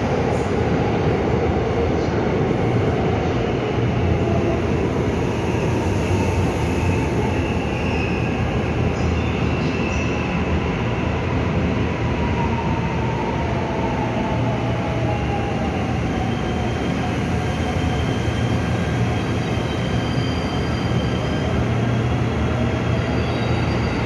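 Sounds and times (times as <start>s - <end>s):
train wheels rumbling on rail: 0.0s - 24.0s
high wheel squeals: 17.6s - 21.6s.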